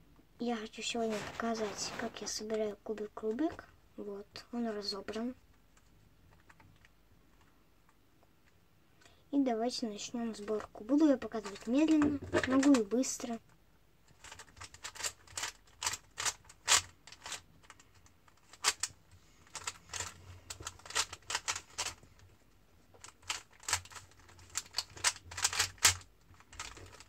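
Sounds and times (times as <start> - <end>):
puzzle cube layers clicking: 23.0 - 27.0.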